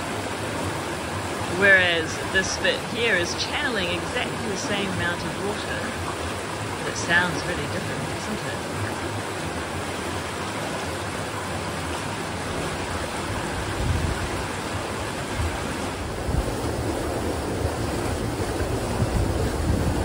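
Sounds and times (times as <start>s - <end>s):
stream water rushing over rocks: 0.0s - 20.0s
wind gusts on microphone: 12.8s - 20.0s.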